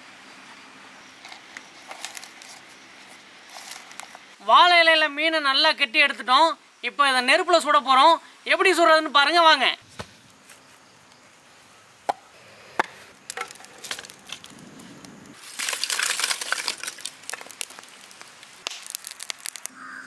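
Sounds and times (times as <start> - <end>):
fire crackling and popping: 1.2 - 4.4, 12.0 - 19.9
wood snapping: 12.8 - 19.8.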